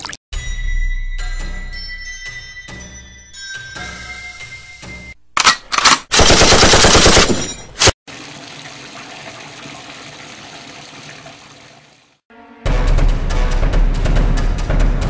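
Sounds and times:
gunshots: 0:05.4 - 0:08.0
machine-gun fire: 0:06.1 - 0:07.5.

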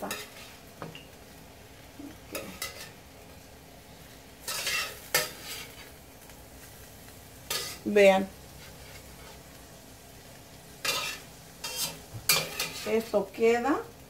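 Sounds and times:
metal utensil scraping skillet: 0:00.0 - 0:01.2, 0:02.2 - 0:03.0, 0:04.4 - 0:06.0, 0:07.5 - 0:07.9, 0:08.5 - 0:09.5, 0:10.8 - 0:13.2
faint sizzle from pan: 0:00.0 - 0:14.0.

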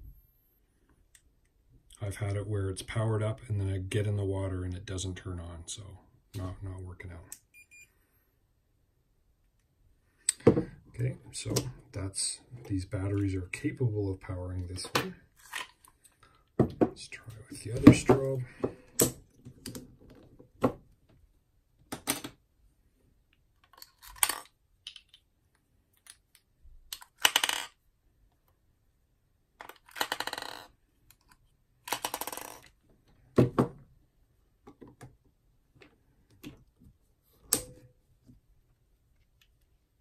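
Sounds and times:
batteries clicking and rattling: 0:25.9 - 0:27.8, 0:29.6 - 0:32.7.

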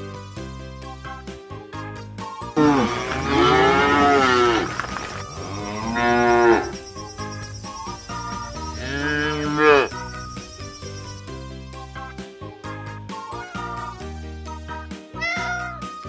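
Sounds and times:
soft background music: 0:00.0 - 0:16.0
cow mooing: 0:02.6 - 0:06.8, 0:08.8 - 0:10.0.

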